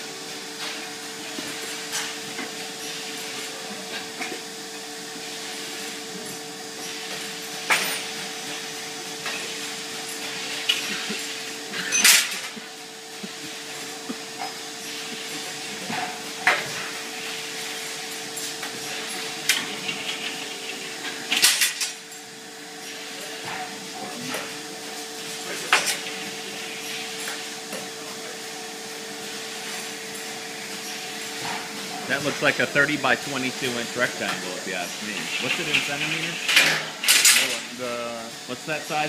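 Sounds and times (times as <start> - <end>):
factory hum: 0.0 - 39.0
metallic clanks of bending machine: 35.4 - 37.7.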